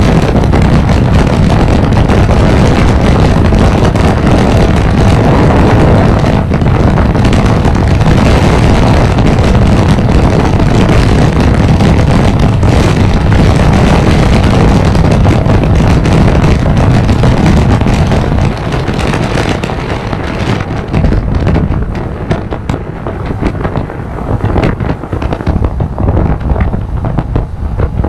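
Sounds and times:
road noise: 0.0s - 28.0s
wind buffeting microphone: 0.0s - 28.0s.

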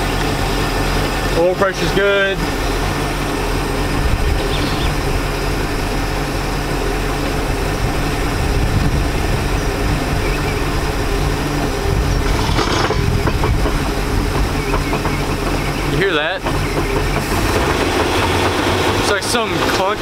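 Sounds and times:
boat engine idling: 0.0s - 20.0s
gear shift clunk: 11.6s - 17.6s.

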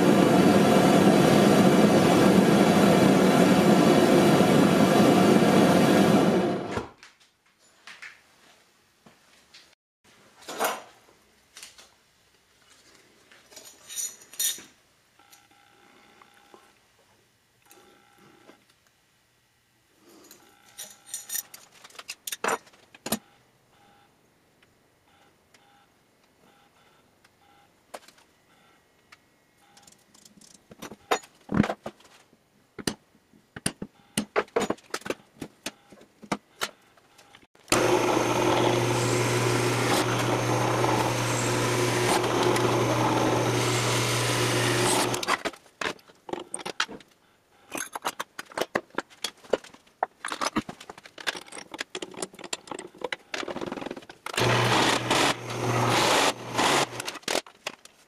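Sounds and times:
drill press drilling steel: 37.7s - 45.3s, 54.4s - 57.1s.

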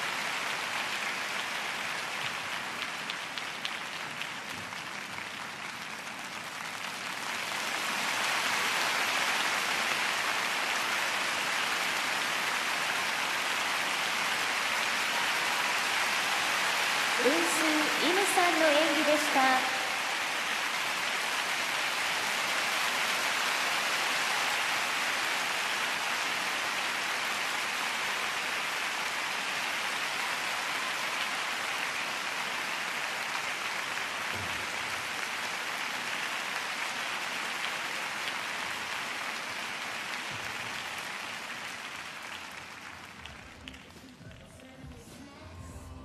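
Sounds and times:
crowd applauding: 0.0s - 44.8s.

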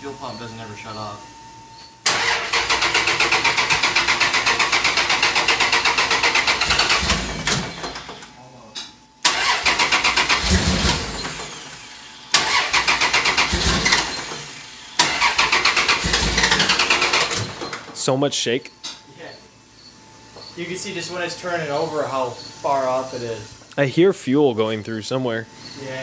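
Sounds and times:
engine cranking on starter: 2.0s - 8.3s, 9.2s - 18.0s.

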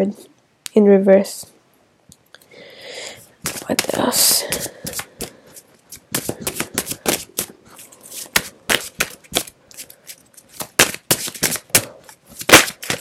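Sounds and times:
cards being shuffled: 3.4s - 13.0s.

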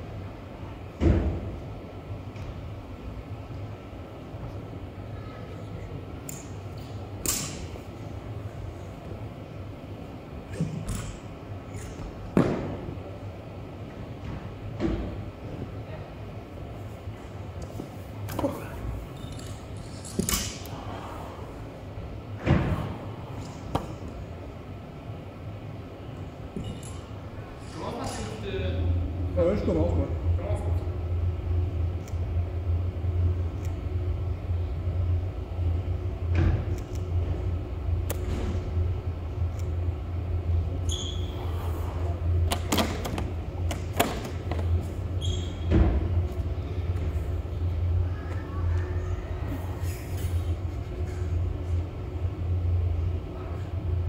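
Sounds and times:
low steady hum: 0.0s - 54.0s
high squeaks: 40.8s - 41.5s, 45.2s - 45.7s.

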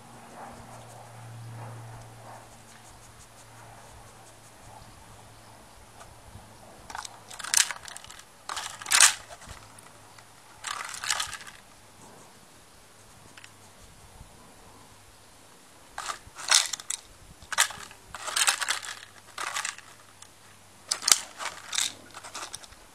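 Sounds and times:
plastic bottle crinkling and knocking: 6.9s - 9.9s, 10.6s - 11.6s, 16.0s - 20.2s, 20.9s - 22.8s.

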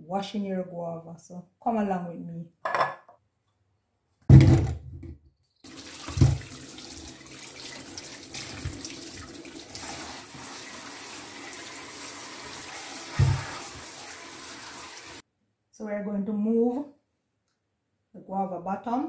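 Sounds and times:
tap running into steel sink: 5.9s - 6.6s, 13.1s - 13.6s
fruit thudding into sink: 6.0s - 6.6s, 13.2s - 13.5s.

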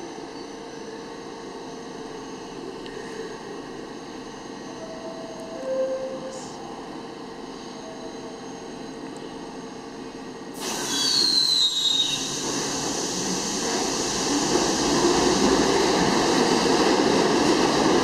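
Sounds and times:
rush of rail noise: 10.5s - 18.0s
high wheel squeal: 10.8s - 12.4s.

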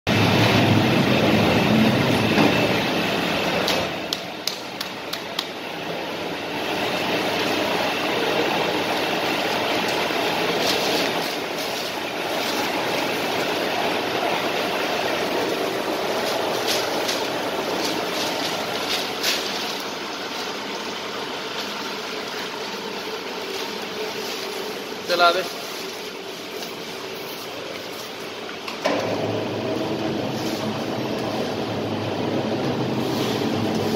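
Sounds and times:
punching machine drone: 0.1s - 4.2s, 28.8s - 32.9s.

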